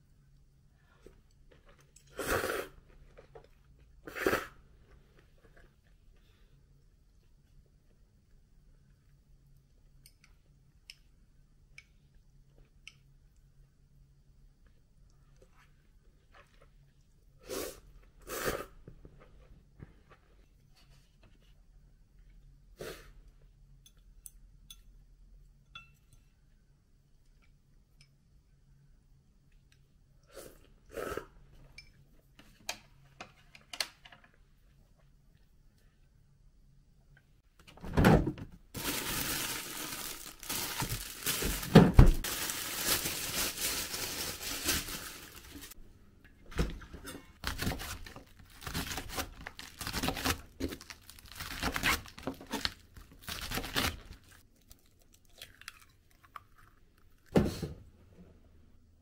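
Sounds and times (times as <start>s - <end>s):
plastic bag crinkling and tearing: 38.8s - 45.8s, 47.4s - 54.4s.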